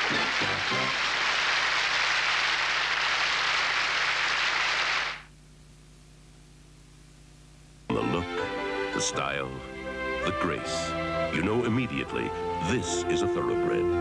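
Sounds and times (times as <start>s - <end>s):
studio audience applauding: 0.0s - 5.3s
faint low hum: 5.1s - 8.3s
band music: 7.9s - 14.0s.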